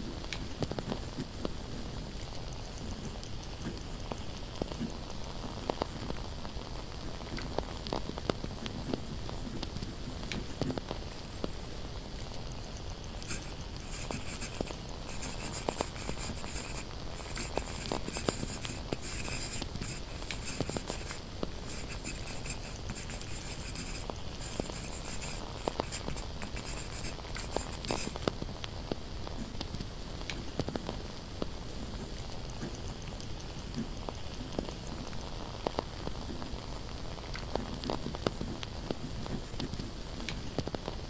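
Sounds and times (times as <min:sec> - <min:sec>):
steady hiss: 0:00.0 - 0:41.0
candle crackling: 0:00.3 - 0:29.7
pen scratching on paper: 0:13.2 - 0:28.2.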